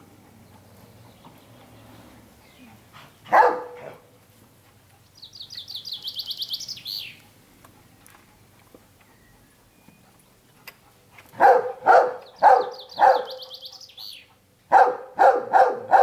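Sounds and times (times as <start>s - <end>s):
loud bark-like bird call: 3.3s - 3.9s, 11.4s - 16.0s
songbird trilling: 5.2s - 7.2s, 12.2s - 14.3s.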